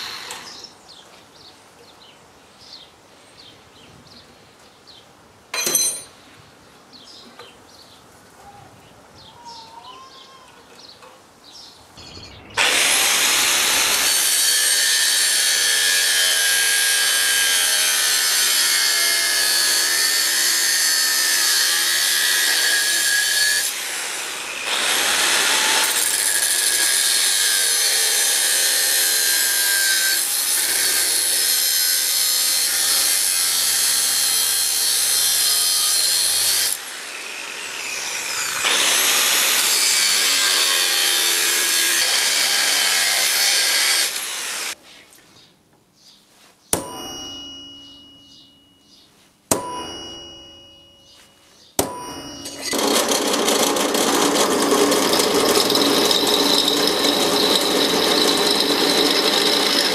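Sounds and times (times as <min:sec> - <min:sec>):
angle grinder cutting steel: 0:12.5 - 0:44.8, 0:52.0 - 0:59.9.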